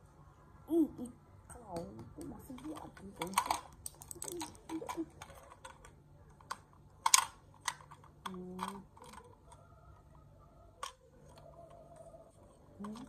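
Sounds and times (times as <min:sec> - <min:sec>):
plastic figures clacking together: 0:01.8 - 0:13.0.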